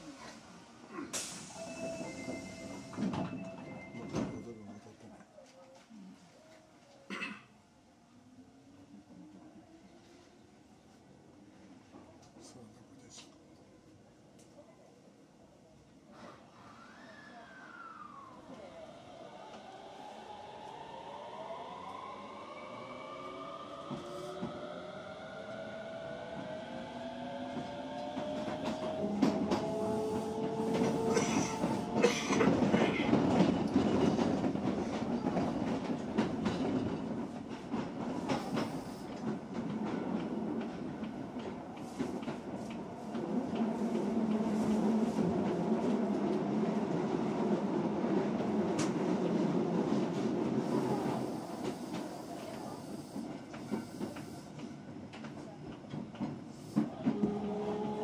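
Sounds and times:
wheels rumbling on rails: 0:22.2 - 0:58.0.

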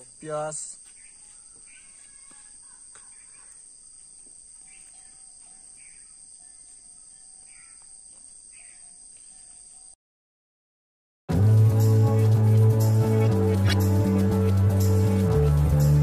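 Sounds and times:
insect chorus: 0:00.0 - 0:10.0
bird chirps: 0:00.8 - 0:10.0.

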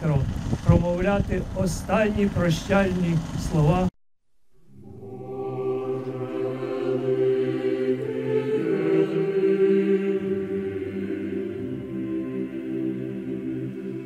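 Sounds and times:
solemn choral music: 0:04.6 - 0:14.0.

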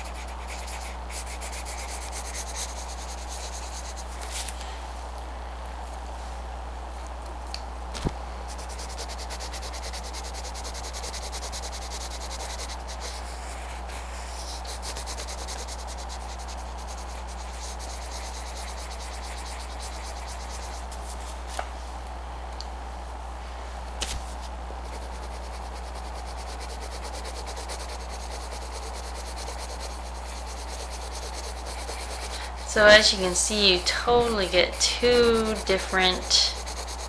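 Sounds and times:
pencil scratching on paper: 0:00.0 - 0:04.2, 0:08.5 - 0:21.3, 0:24.8 - 0:37.0.

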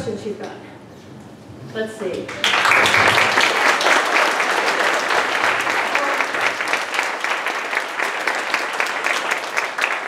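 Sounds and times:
audience applauding: 0:02.3 - 0:10.0.

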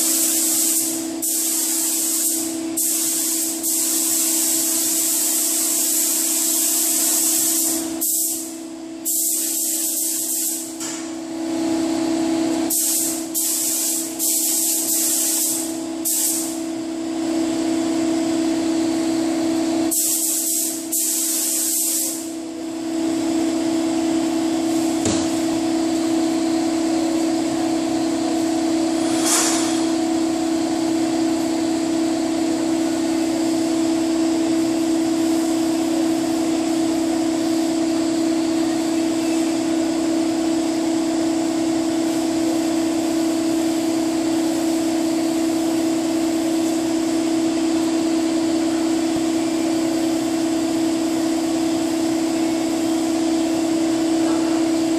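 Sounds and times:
paint spray gun hissing: 0:00.0 - 0:10.8, 0:12.7 - 0:16.6, 0:19.9 - 0:22.4.

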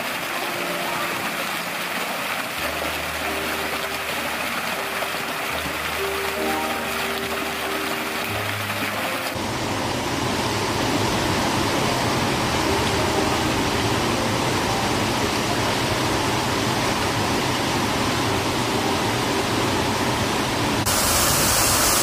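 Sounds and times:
fountain water pouring: 0:00.0 - 0:22.0
stream rushing over rocks: 0:00.0 - 0:22.0.

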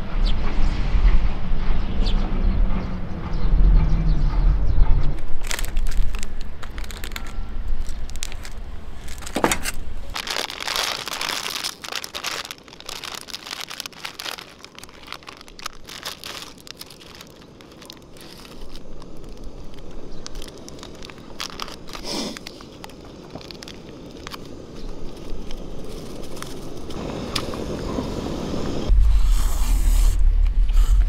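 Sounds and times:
low rumble: 0:00.0 - 0:22.0, 0:26.8 - 0:31.0
clicks and crackles: 0:05.1 - 0:27.6
crinkling and rustling: 0:05.2 - 0:27.7.

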